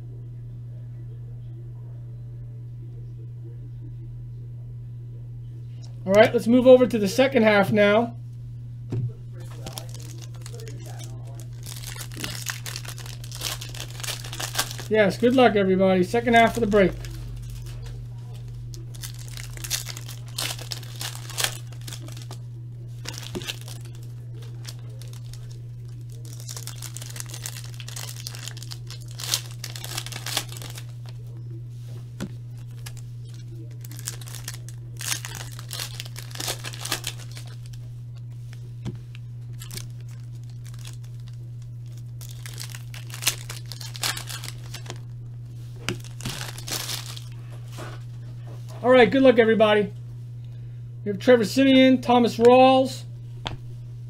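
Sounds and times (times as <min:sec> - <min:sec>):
steady low hum: 0:00.0 - 0:54.0
wrappers tearing and crinkling: 0:09.4 - 0:15.4, 0:16.1 - 0:31.2, 0:32.2 - 0:37.9, 0:39.5 - 0:45.1, 0:45.8 - 0:47.9.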